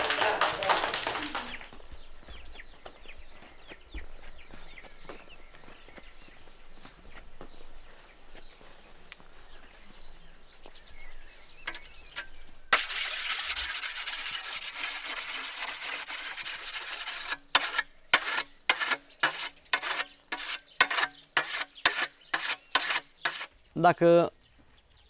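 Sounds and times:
whetstone scraping scythe blade: 11.7 - 23.5.

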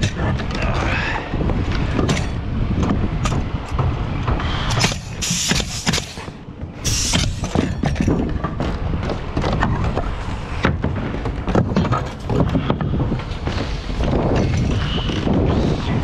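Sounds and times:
low rumble: 0.0 - 5.7
boots stepping on roof: 0.0 - 16.0.

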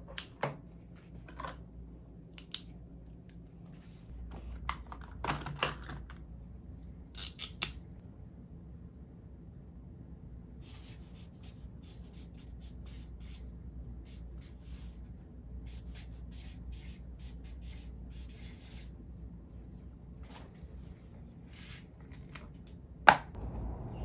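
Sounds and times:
steady low hum: 0.0 - 4.9, 6.0 - 24.0
marker writing on paper: 10.6 - 13.4, 15.7 - 18.9.

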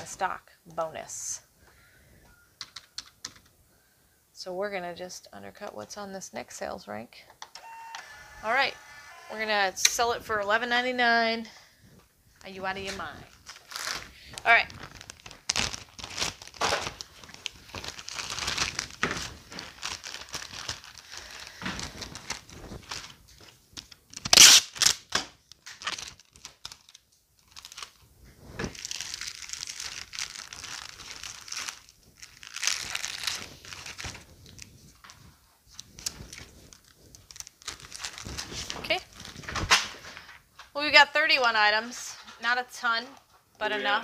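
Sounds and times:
packaging crinkling and rustling: 12.3 - 40.7.

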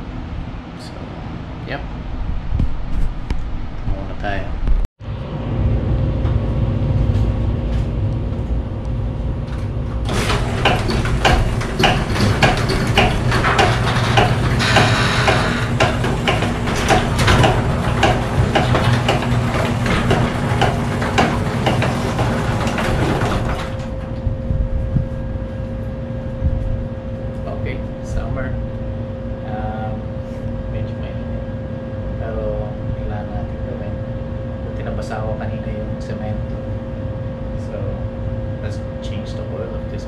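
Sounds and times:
steady low hum: 0.0 - 40.0
garage door rollers rattling: 9.9 - 24.2.

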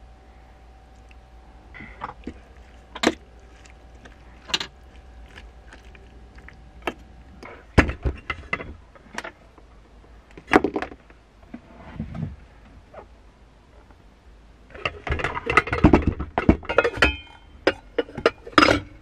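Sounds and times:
pot lid clattering: 14.8 - 19.0.

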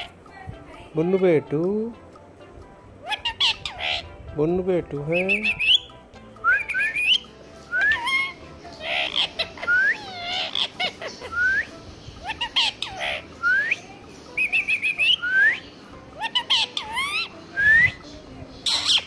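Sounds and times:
parakeet squawky calls: 3.0 - 4.2, 5.0 - 6.0, 6.6 - 18.0, 18.6 - 19.0
parakeet whistling and chattering: 3.0 - 4.2, 5.0 - 19.0.

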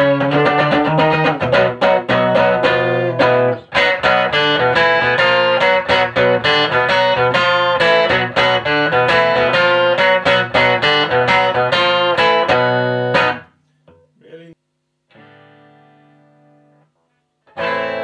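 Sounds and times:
electric guitar chords strummed: 0.0 - 13.5, 15.1 - 18.0.

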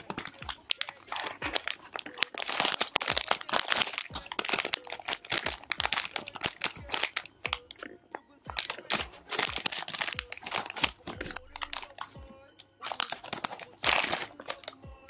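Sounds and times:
plastic bag crinkling: 0.0 - 15.0.

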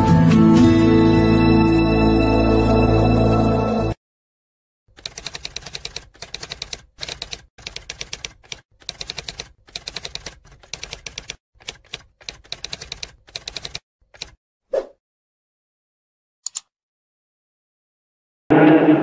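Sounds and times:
typewriter key clicks: 5.0 - 14.4.

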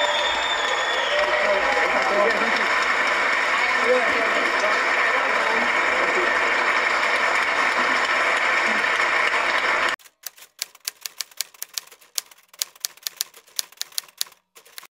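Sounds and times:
audience applauding: 0.0 - 10.0
typewriter keys clattering: 10.0 - 14.9.

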